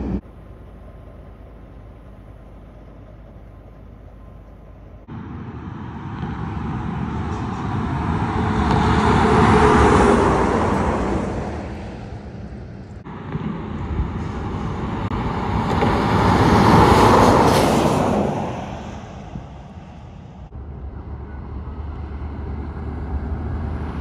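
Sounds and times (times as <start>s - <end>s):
heavy trucks passing: 0.0s - 24.0s.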